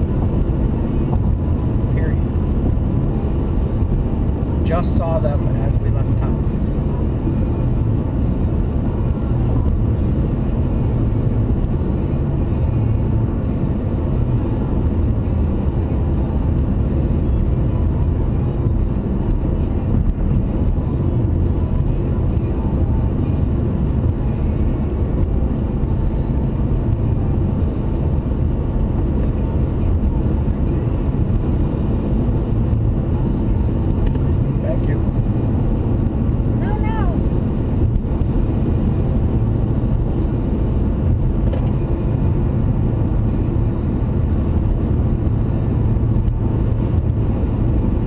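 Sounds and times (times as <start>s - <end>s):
car road and engine noise: 0.0s - 48.0s.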